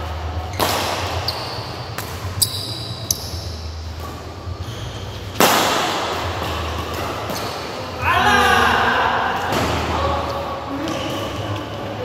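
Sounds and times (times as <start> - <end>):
shoes squeaking on court: 0.4 - 5.4, 6.3 - 8.0, 10.7 - 12.0
rackets hitting shuttlecock: 0.5 - 3.4, 5.3 - 8.0.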